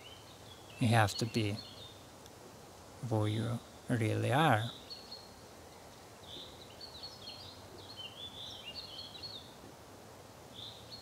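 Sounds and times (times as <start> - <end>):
songbird chirping: 0.0 - 9.7, 10.5 - 11.0
background hiss: 0.0 - 11.0.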